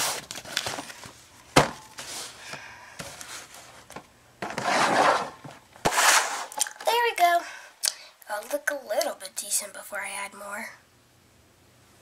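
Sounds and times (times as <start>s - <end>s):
rustling and scraping on desk: 1.8s - 6.7s.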